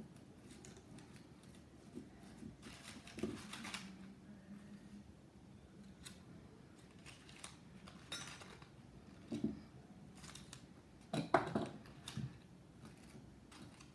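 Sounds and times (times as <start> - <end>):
paper rustling: 0.4 - 4.1.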